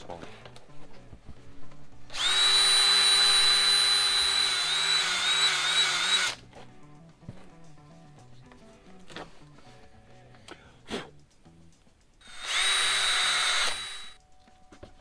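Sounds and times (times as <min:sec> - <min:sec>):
drill sanding with flap wheel: 0:02.1 - 0:06.4, 0:12.2 - 0:14.2.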